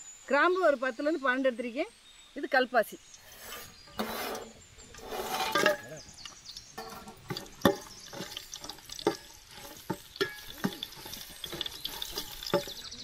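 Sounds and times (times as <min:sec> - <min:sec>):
spices sizzling in oil: 0:00.0 - 0:13.0
ladle knocking against pot: 0:06.8 - 0:12.8.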